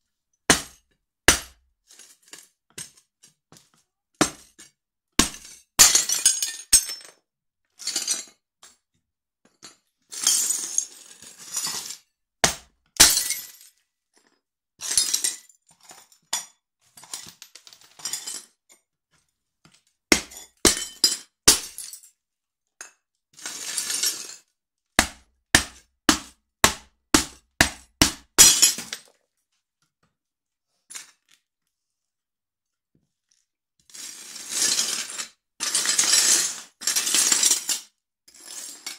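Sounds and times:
plates cracking and shattering: 5.2s - 7.0s, 12.5s - 13.7s, 28.2s - 29.2s
shards clinking and crunching: 28.4s - 29.1s.

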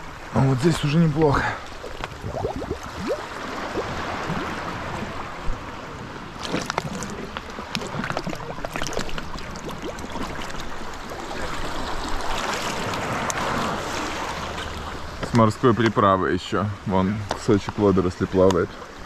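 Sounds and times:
water splashing and gurgling: 0.0s - 15.8s
small surf washing: 0.0s - 19.0s
crackling splashes: 0.5s - 5.6s, 6.2s - 16.0s.

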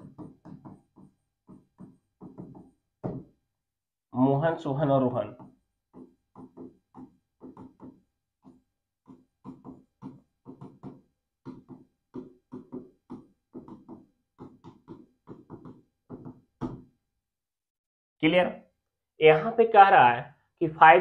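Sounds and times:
marker squeaking on board: 0.0s - 2.8s, 5.3s - 16.7s.

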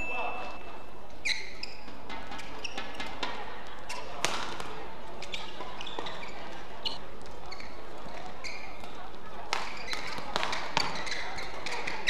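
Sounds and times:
shoes squeaking on court: 1.2s - 3.2s, 5.2s - 8.9s, 9.5s - 12.0s
racket hitting shuttlecock: 1.9s - 4.7s.

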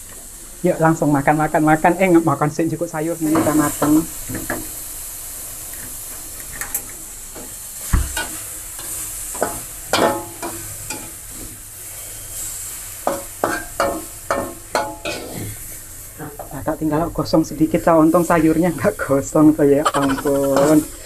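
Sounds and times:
food sizzling in a wok: 0.0s - 21.0s
dull thump: 7.9s - 8.2s
metal spatula scraping pan: 13.4s - 15.5s.

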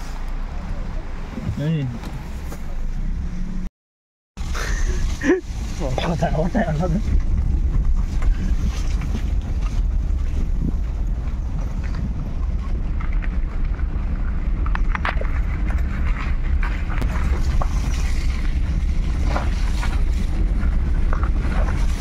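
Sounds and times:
wind buffeting microphone: 4.4s - 22.0s.

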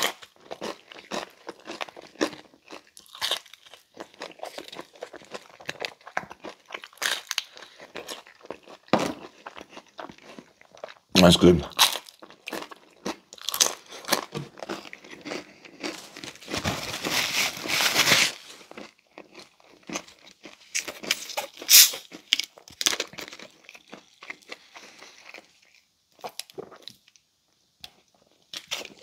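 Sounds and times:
crinkling rustle: 15.9s - 18.8s.

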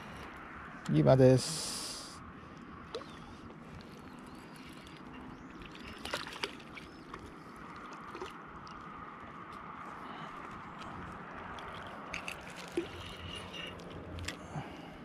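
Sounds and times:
fish splashing at surface: 4.0s - 9.0s, 11.2s - 14.4s.

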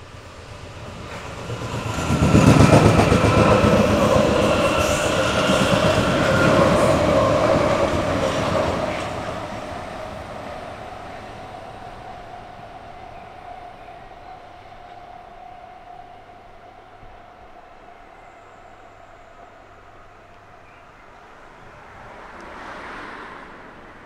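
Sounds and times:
train wheels rumbling on rails: 0.0s - 20.5s
train motor whine: 0.1s - 13.8s.

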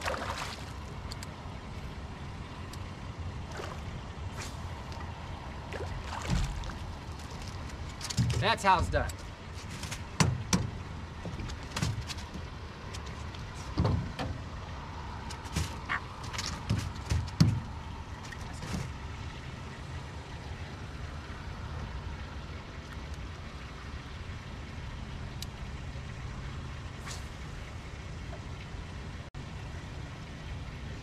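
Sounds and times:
steady low rumble: 0.0s - 31.0s
gear knocking and clattering: 6.3s - 14.4s.

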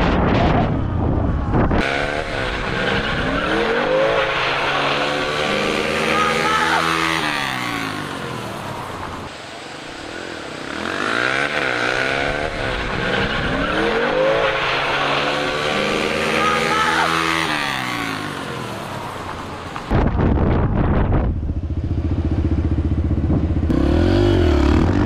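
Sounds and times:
dirt bike engine revving: 1.7s - 8.4s, 10.6s - 18.9s, 21.7s - 25.0s.

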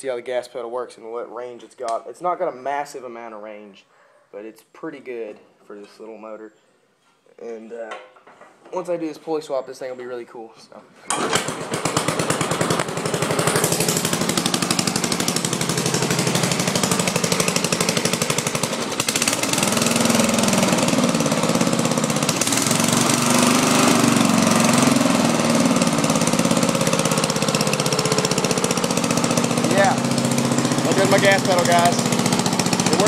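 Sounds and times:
riding mower engine chugging: 11.1s - 33.0s.

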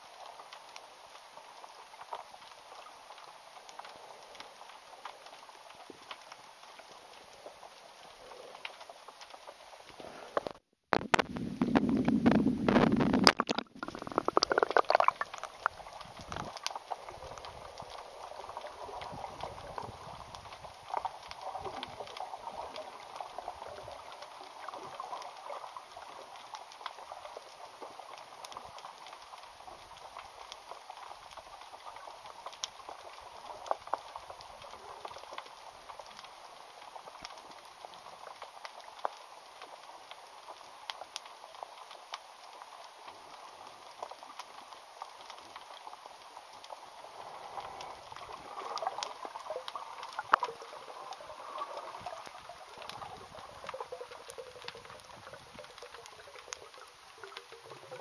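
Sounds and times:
underwater crackle of tiny clicks: 0.0s - 58.0s
water splashing and sloshing: 11.2s - 26.6s, 46.4s - 58.0s.

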